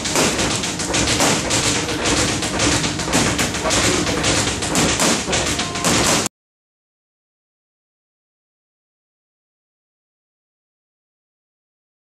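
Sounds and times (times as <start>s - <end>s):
boxing gloves slapping mitts: 0.0s - 6.3s.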